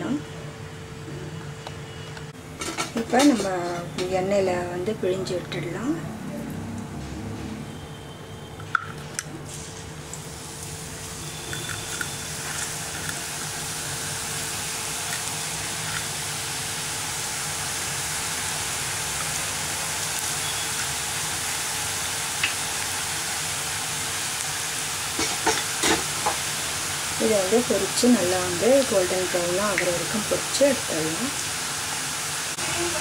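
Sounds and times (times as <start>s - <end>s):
dough sizzling in hot oil: 9.4s - 33.0s.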